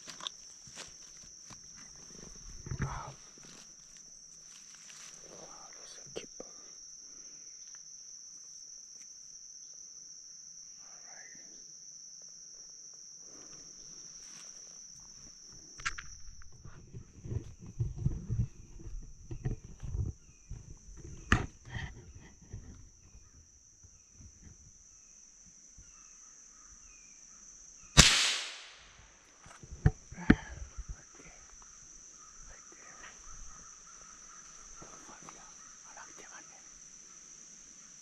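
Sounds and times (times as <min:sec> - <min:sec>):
rustling through undergrowth: 0:00.0 - 0:05.8, 0:13.6 - 0:21.2
insects buzzing: 0:00.0 - 0:38.0
loud gunshot: 0:28.0 - 0:28.9
sharp clicks: 0:28.0 - 0:28.9.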